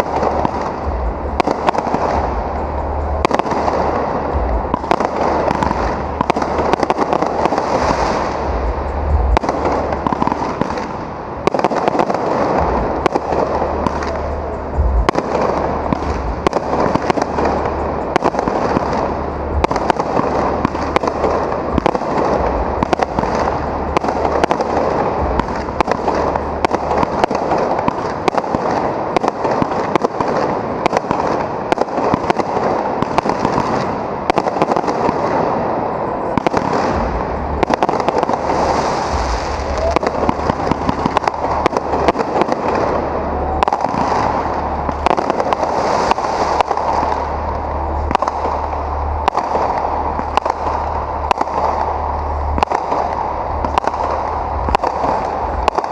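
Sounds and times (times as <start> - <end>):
aerial fireworks bursting: 0.0 - 55.9.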